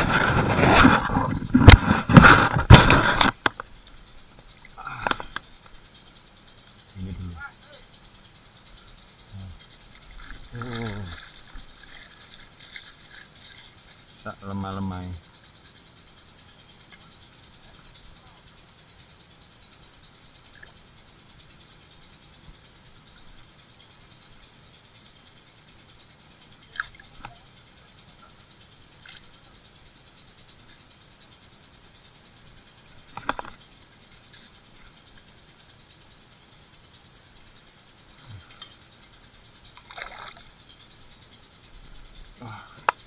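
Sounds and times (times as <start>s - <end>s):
faint steady background: 0.0s - 43.0s
fish rattling in mesh net: 9.8s - 14.1s, 39.7s - 40.8s.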